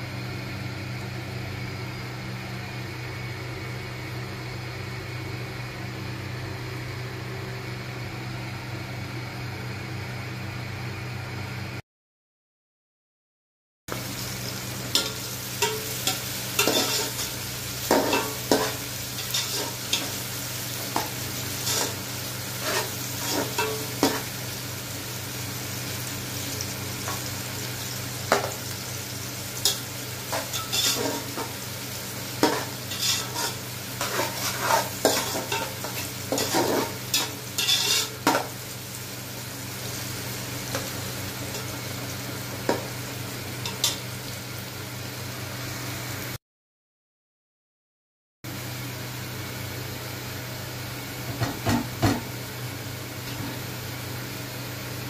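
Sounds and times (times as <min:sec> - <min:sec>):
onions sizzling in oil: 0:13.9 - 0:46.4, 0:48.5 - 0:55.0
wooden spatula scraping a pot: 0:22.6 - 0:24.2, 0:30.4 - 0:31.5, 0:32.4 - 0:38.2.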